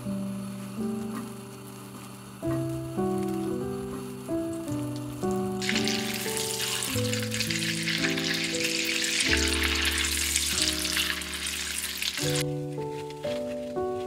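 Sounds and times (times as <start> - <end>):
soft background music: 0.0 - 14.0
butter sizzling in a pan: 0.1 - 12.5.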